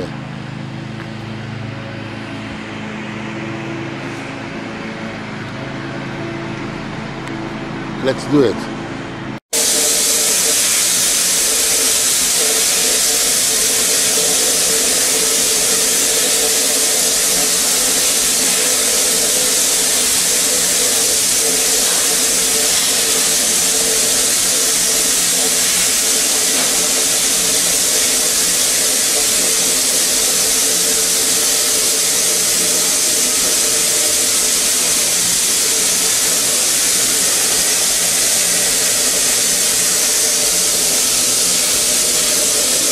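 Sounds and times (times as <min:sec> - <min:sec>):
steam hissing: 0:09.5 - 0:42.9.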